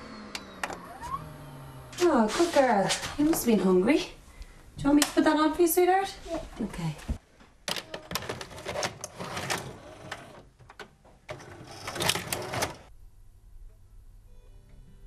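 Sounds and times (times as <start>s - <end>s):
tape loading mechanism whirring: 0.0s - 2.1s, 8.3s - 12.9s.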